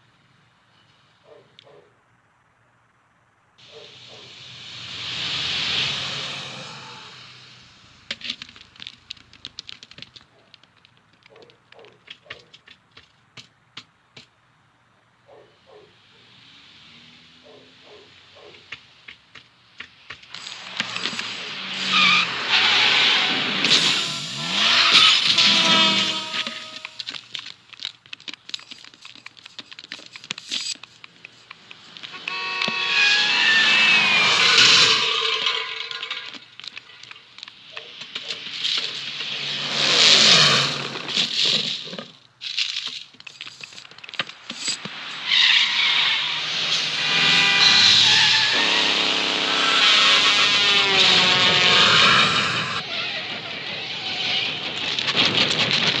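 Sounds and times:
car engines passing: 3.6 - 9.2, 15.9 - 19.1, 20.4 - 26.7, 31.2 - 36.2, 37.6 - 41.7, 44.6 - 54.8
rushing traffic noise: 3.6 - 10.2, 14.5 - 27.1, 29.5 - 42.4, 43.6 - 56.0
tyres screeching and skidding: 3.6 - 11.5, 16.1 - 19.1, 19.8 - 27.8, 28.5 - 56.0
engine rising in pitch: 4.4 - 7.6, 46.0 - 52.8.

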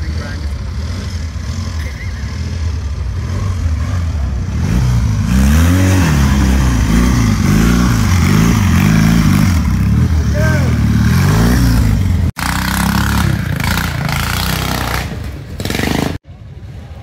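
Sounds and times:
motorcycle engine revving: 0.0 - 16.2.

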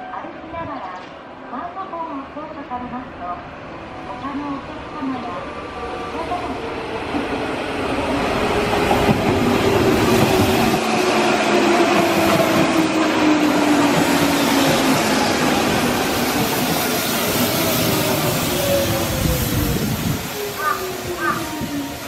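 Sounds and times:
train wheels rumbling on rails: 4.9 - 22.0.

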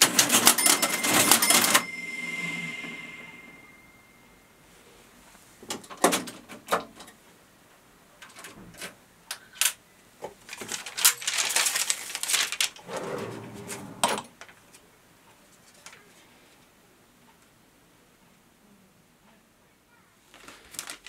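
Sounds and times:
cash register clicks and knocks: 0.0 - 1.9
paper tape rustling: 10.5 - 12.9, 20.3 - 21.0.

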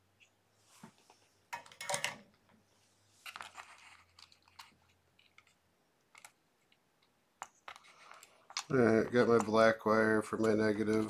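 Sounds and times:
hands handling plastic toy: 3.2 - 11.0.

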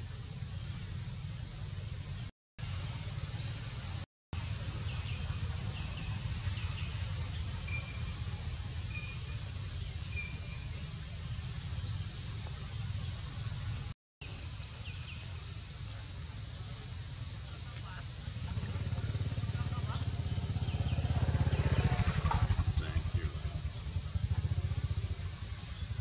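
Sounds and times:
high insect drone: 0.0 - 26.0
steady low rumble: 15.4 - 26.0.

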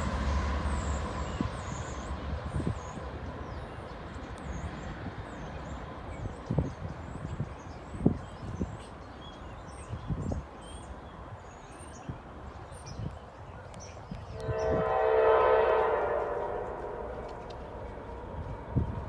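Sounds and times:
locomotive air horn blast: 14.4 - 17.9.

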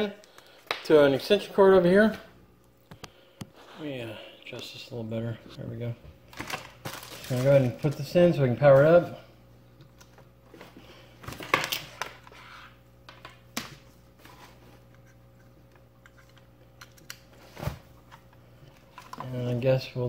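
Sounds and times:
faint steady hum: 0.0 - 20.0
plastic rustling: 6.3 - 9.0.

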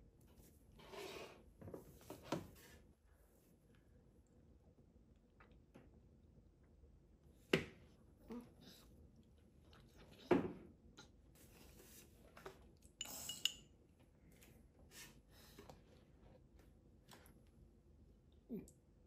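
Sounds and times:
tableware clinking: 13.0 - 13.7.

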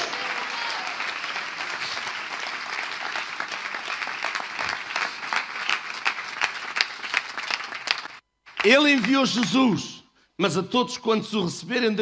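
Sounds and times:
crowd applauding: 0.0 - 9.8.

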